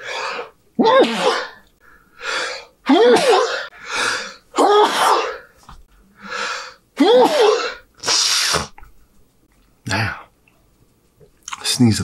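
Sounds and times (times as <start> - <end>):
man sneezing: 0.8 - 1.6.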